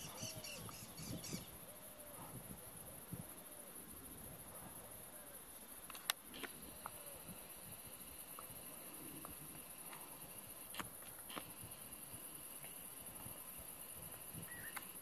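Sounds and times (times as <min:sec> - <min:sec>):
faint outdoor ambience: 0:00.0 - 0:15.0.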